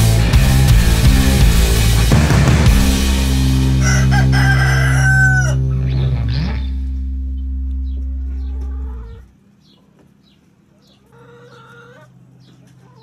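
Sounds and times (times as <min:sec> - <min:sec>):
loud low drone: 0:00.0 - 0:09.3
chickens clucking: 0:07.9 - 0:13.0.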